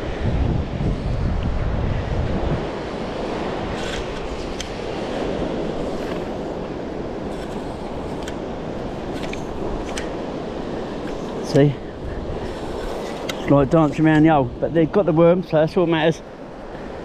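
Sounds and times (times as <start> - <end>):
wind: 0.0 - 17.0
metal pump scraping in stony sand: 7.3 - 7.9.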